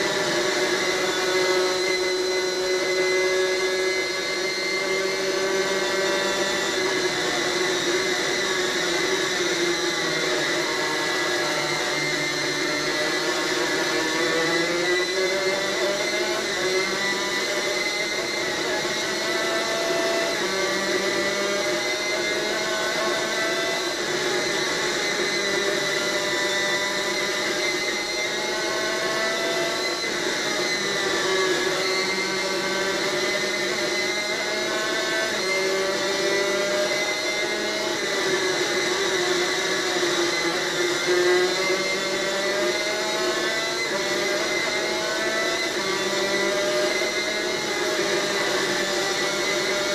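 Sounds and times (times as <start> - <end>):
racing kart engine at full throttle: 0.0 - 49.9.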